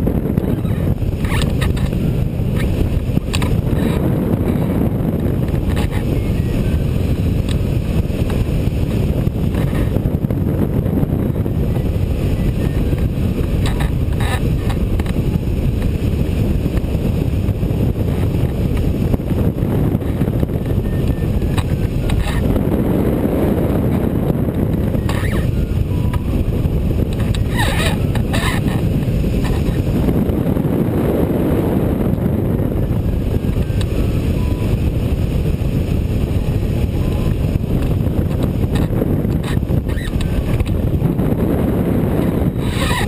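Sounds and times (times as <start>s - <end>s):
wind rushing over microphone: 0.0s - 43.0s.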